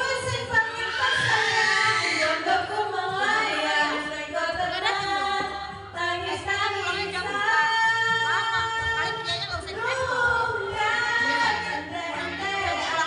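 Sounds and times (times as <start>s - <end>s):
woman singing karaoke: 0.0s - 13.0s.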